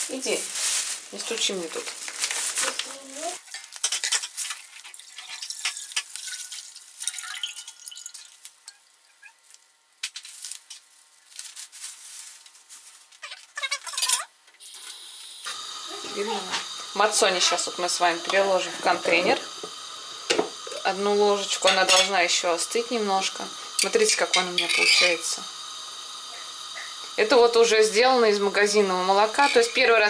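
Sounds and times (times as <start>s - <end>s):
plastic bag crinkling: 0.0s - 7.1s, 9.4s - 14.0s
kitchen clicks and clatters: 2.0s - 8.8s, 21.4s - 22.3s, 23.8s - 25.2s, 29.2s - 30.0s
milk pouring into pan: 4.5s - 9.2s.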